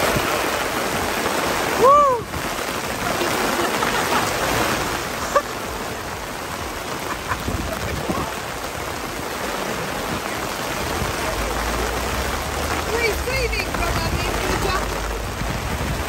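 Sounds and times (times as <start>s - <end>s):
heavy rain on stone paving: 0.0s - 16.0s.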